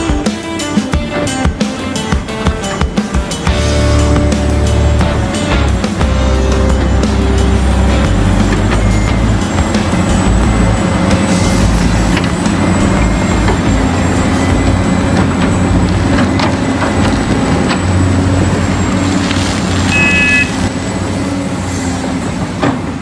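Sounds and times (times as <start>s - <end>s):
excavator hydraulic pump hum: 3.6s - 23.0s
short beep: 19.9s - 20.6s.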